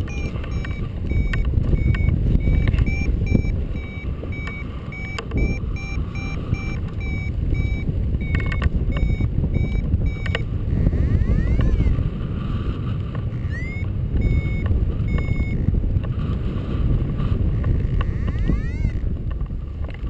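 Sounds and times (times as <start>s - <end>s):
variometer high beeps: 0.0s - 12.0s, 13.3s - 15.7s, 18.0s - 19.0s
wind rushing over microphone: 0.0s - 20.0s.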